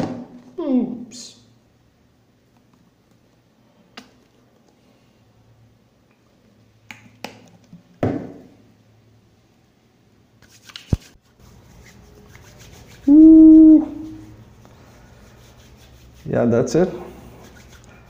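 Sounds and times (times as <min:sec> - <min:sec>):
hands rubbing: 0:10.4 - 0:18.0.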